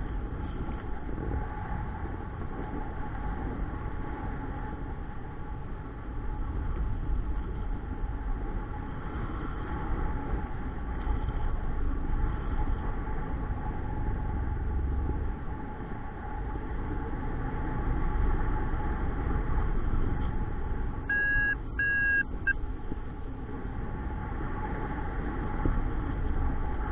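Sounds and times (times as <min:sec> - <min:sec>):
wind rushing over microphone: 0:00.0 - 0:21.1
short electronic beeps: 0:21.1 - 0:22.6.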